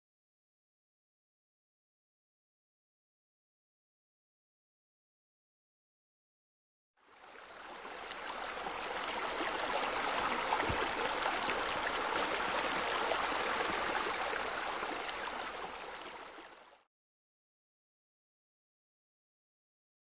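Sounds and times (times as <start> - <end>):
splashing water jet: 8.0 - 15.9.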